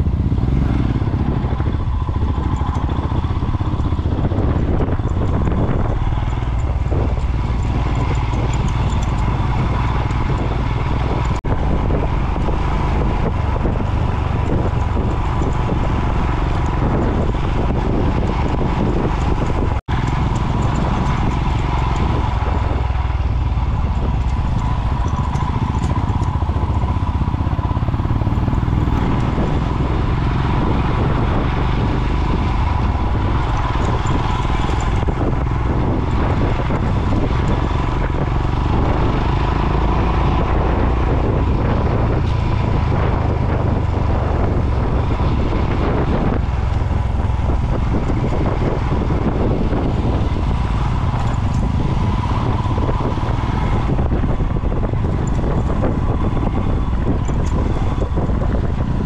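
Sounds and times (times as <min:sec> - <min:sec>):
motorcycle engine running: 0:00.0 - 0:59.0
wind and road noise: 0:00.0 - 0:59.0.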